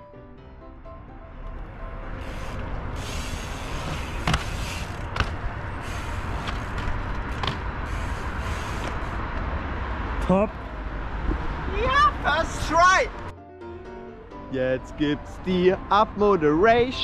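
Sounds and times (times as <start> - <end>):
bike tyres rolling on stone: 2.2 - 9.4
bike landing clacks: 3.8 - 5.5, 6.4 - 7.8.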